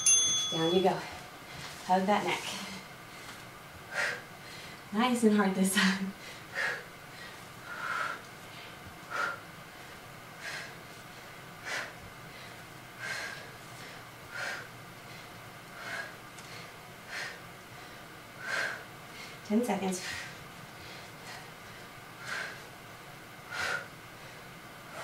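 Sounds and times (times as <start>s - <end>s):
woman breathing hard: 3.1s - 4.9s, 5.8s - 19.4s, 20.0s - 22.8s, 23.4s - 25.0s.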